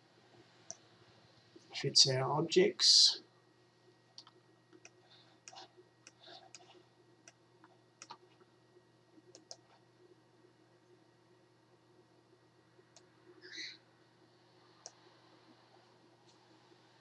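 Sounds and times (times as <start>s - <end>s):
low steady hum: 0.0s - 17.0s
computer mouse clicks: 4.2s - 7.4s, 8.0s - 8.2s, 9.3s - 9.8s, 14.8s - 15.0s.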